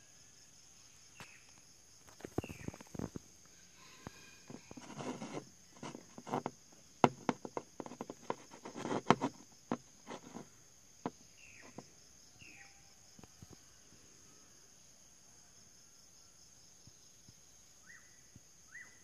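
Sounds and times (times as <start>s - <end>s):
high insect trill: 0.0s - 19.0s
figurine clicking on hard surface: 4.5s - 10.4s.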